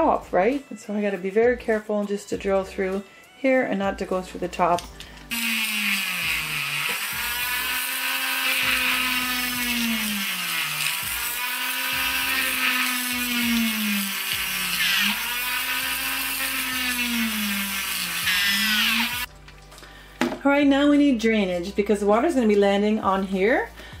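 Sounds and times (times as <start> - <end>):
drill bit boring plastic: 5.3 - 19.3
rotary tool motor whine: 5.3 - 19.3.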